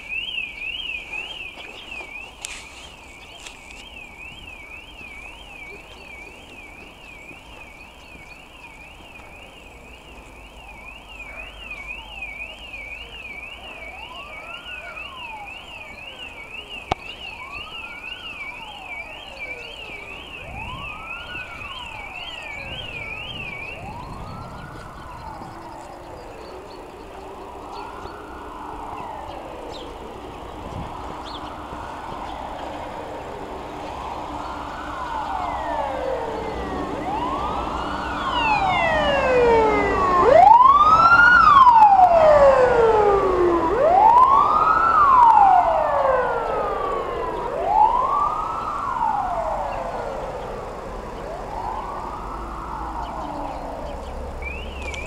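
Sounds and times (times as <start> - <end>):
car alarm warbling: 0.0 - 55.0
slow rising and falling wail: 18.6 - 54.8.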